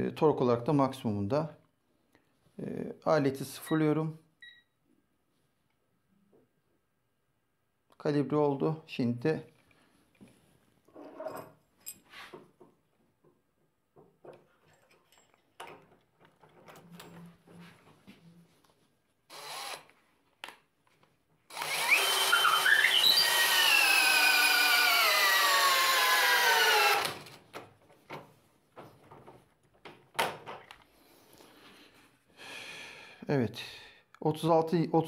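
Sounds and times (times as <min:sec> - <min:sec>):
cordless drill motor whining: 0:19.3 - 0:19.9, 0:21.5 - 0:27.3.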